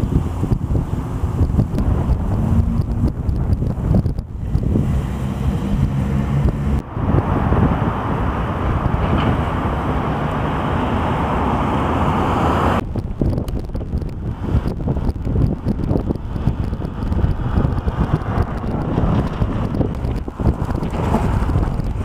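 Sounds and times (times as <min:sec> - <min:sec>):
steady rushing noise: 0:00.0 - 0:22.0
wind buffeting microphone: 0:00.0 - 0:22.0.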